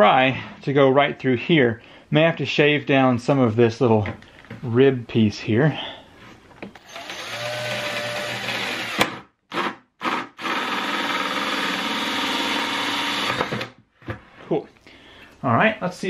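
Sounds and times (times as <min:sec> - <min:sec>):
drill cutting plastic bucket: 0:06.8 - 0:13.8.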